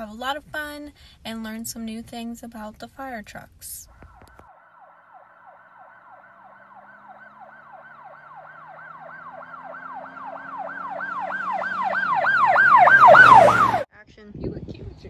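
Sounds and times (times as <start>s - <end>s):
siren yelping: 3.8s - 13.9s.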